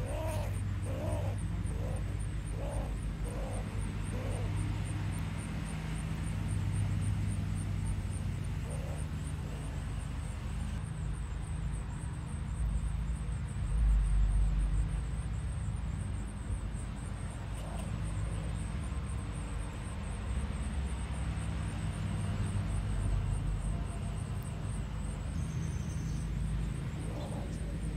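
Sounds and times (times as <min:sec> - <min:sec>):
distant vehicle engine hum: 0:00.0 - 0:27.9.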